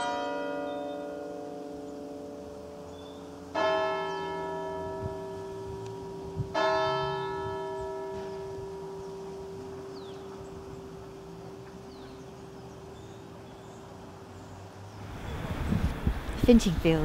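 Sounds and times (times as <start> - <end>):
church bell tolling: 0.0 - 13.2.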